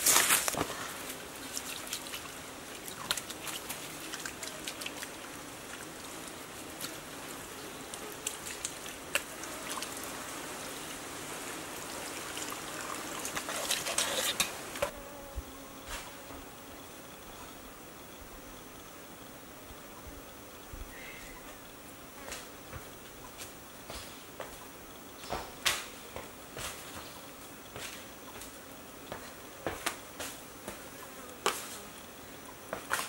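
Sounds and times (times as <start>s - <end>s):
water splashing: 0.0s - 14.9s
water trickling onto rocks: 0.0s - 14.9s.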